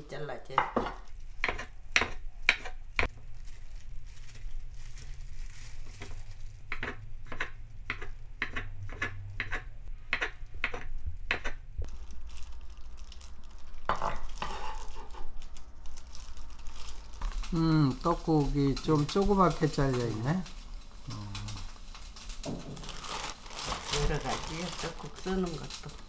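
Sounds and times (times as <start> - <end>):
knife chopping on wooden board: 0.7 - 2.8, 6.7 - 11.6.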